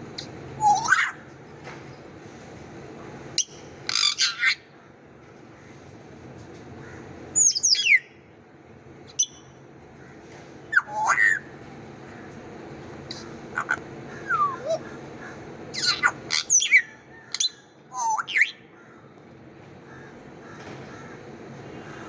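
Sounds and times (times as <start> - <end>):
parrot whistles and squawks: 0.6 - 1.2, 3.4 - 4.6, 10.7 - 11.5, 13.6 - 14.9, 15.7 - 18.6.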